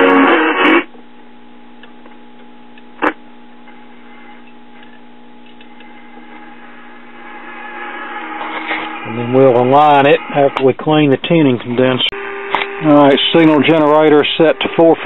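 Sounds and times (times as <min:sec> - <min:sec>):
radio noise: 0:00.0 - 0:00.9, 0:03.0 - 0:04.8, 0:05.6 - 0:15.0
radio station playing: 0:00.0 - 0:00.9, 0:03.0 - 0:03.2, 0:05.6 - 0:15.0
radio hum between stations: 0:00.0 - 0:15.0.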